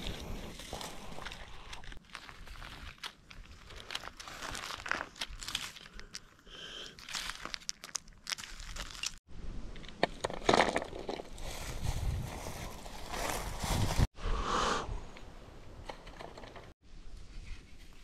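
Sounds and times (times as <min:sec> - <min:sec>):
dry bark crackling: 0:00.0 - 0:09.2
dry leaves rustling and crunching: 0:01.9 - 0:09.2, 0:11.0 - 0:14.1.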